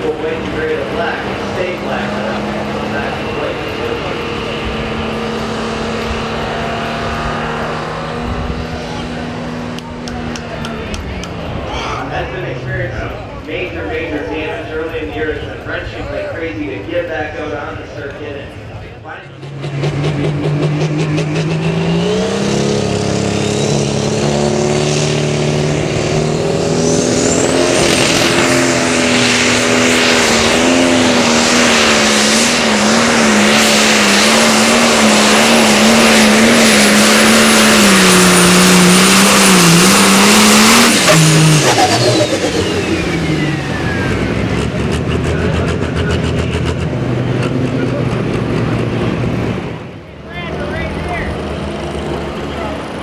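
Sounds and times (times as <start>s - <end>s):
tractor engine at full throttle: 0.0s - 53.0s.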